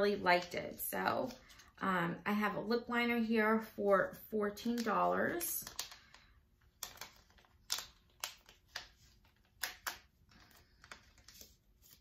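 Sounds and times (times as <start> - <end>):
packaging clicks and crinkles: 5.6 - 12.0.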